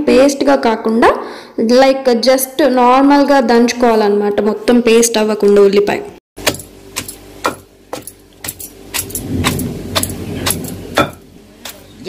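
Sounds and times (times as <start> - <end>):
pestle pounding in stone mortar: 6.4 - 12.0
low rumble: 9.0 - 11.6.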